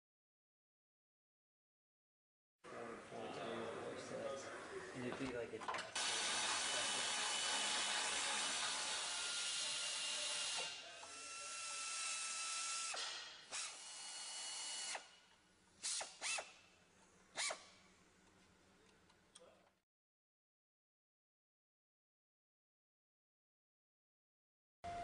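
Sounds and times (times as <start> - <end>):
drill trigger bursts: 6.0 - 15.1, 15.8 - 16.6
power drill whining: 6.0 - 15.1.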